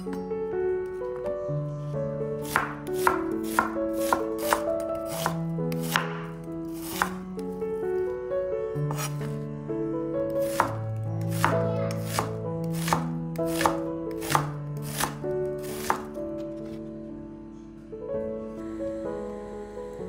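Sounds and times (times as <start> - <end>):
quiet instrumental music: 0.0 - 20.0
knife chopping on wooden board: 2.4 - 7.2, 8.9 - 9.3, 10.4 - 16.8.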